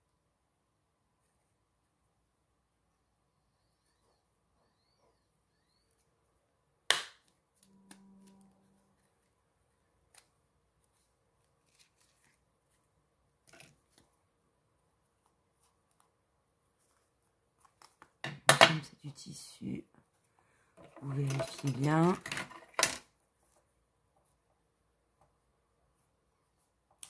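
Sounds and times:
paper rustling: 7.6 - 14.2.

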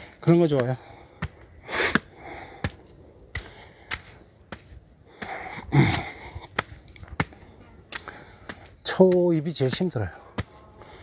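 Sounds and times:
footsteps on concrete steps: 0.0 - 11.0
heavy breathing: 0.8 - 6.8, 8.0 - 8.8, 10.1 - 11.0.

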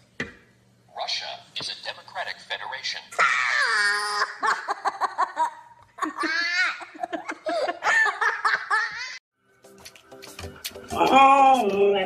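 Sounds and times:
young child laughing: 3.5 - 9.2.

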